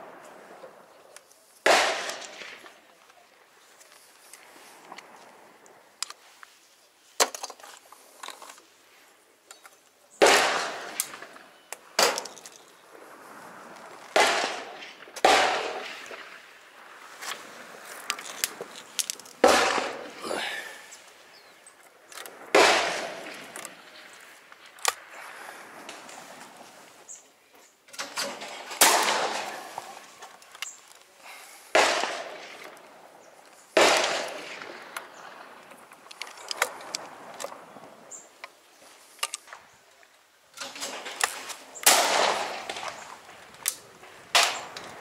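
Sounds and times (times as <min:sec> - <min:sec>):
shotgun shots: 0:01.6 - 0:02.8, 0:10.2 - 0:11.4, 0:14.1 - 0:16.4, 0:19.4 - 0:20.2, 0:22.5 - 0:24.0, 0:28.0 - 0:29.9, 0:31.7 - 0:32.6, 0:33.8 - 0:35.4, 0:40.7 - 0:43.1, 0:44.3 - 0:44.8
shotgun action clicks: 0:44.4 - 0:45.0.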